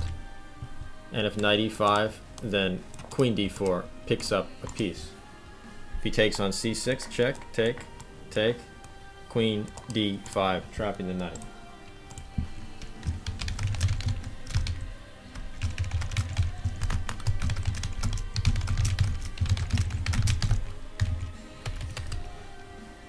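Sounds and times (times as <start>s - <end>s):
faint background music: 0.0s - 23.0s.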